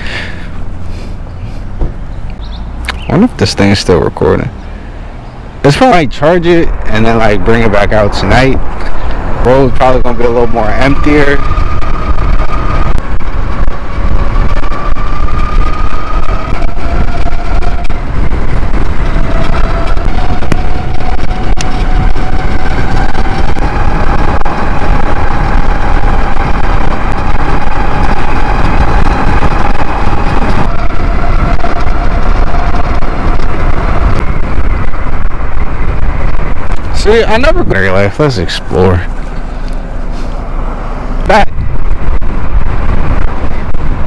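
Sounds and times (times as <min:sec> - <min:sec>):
wind rush on microphone: 0:00.0 - 0:44.0
electric motor whining: 0:08.8 - 0:40.0.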